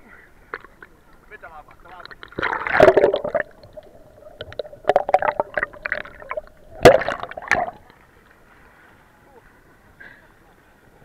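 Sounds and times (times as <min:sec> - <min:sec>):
sea water splashing: 0:00.4 - 0:08.2.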